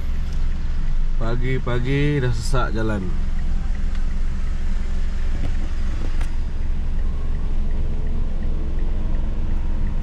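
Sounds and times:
car engine humming: 0:00.0 - 0:10.0
road noise inside car: 0:00.0 - 0:10.0.

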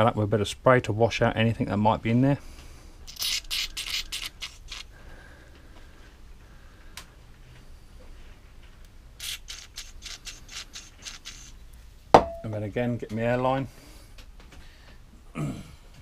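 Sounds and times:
aerosol spray hissing puffs: 0:09.2 - 0:11.5.

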